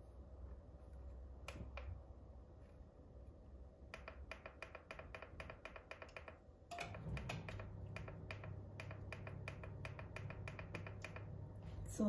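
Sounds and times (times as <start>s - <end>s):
temperature control clicking: 1.4s - 2.0s, 3.9s - 11.6s
low hum: 6.6s - 12.0s.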